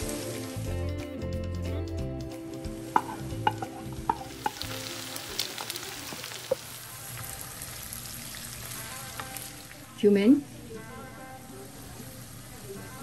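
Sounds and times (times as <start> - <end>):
food sizzling in a pan: 0.0 - 1.1, 2.0 - 13.0
sharp knocks against pan: 2.9 - 4.6.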